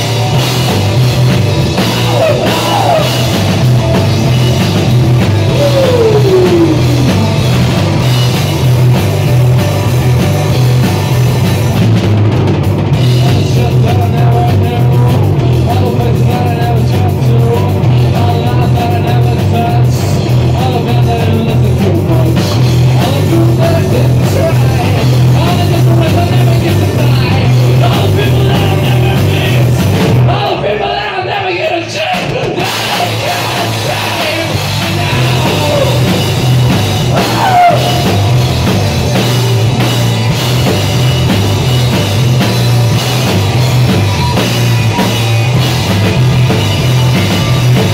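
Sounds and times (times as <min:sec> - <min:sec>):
drum kit: 0:00.0 - 0:30.7, 0:31.6 - 0:47.9
electric guitar: 0:00.0 - 0:30.7, 0:32.0 - 0:47.9
bass guitar: 0:00.0 - 0:47.9
person singing: 0:02.0 - 0:03.2, 0:05.5 - 0:07.4, 0:30.3 - 0:36.3.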